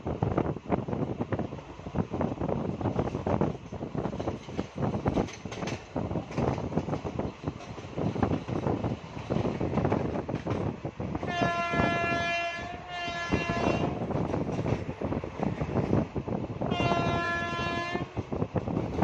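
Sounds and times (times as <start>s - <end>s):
train wheels clattering on rails: 0.1s - 19.0s
train horn blast: 11.2s - 14.0s, 16.6s - 18.1s.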